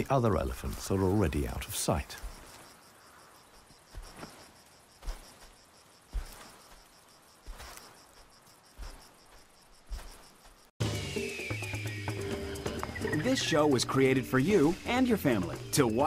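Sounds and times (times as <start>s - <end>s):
rustles: 0.0s - 10.7s
insects chirping: 0.0s - 16.0s.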